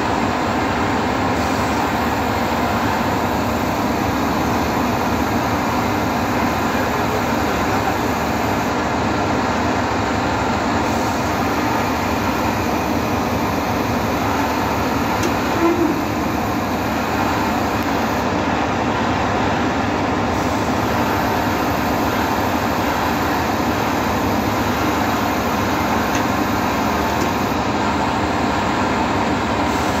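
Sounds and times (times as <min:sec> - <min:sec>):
concrete pump machinery running: 0:00.0 - 0:30.0.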